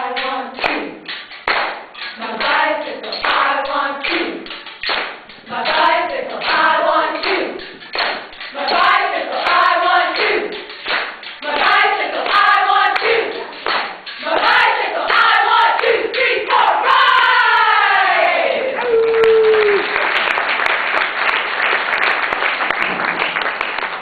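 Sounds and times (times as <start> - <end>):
women chanting in unison: 0.0 - 1.0, 2.2 - 4.4, 5.4 - 7.6, 8.6 - 10.6, 11.4 - 13.6, 14.2 - 18.8
hand claps: 0.2 - 16.6, 18.8 - 24.0.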